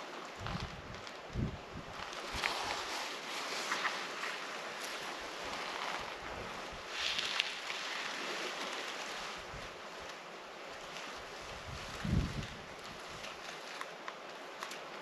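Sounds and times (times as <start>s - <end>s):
wind on microphone: 0.0s - 3.2s, 9.3s - 10.0s, 11.1s - 13.4s.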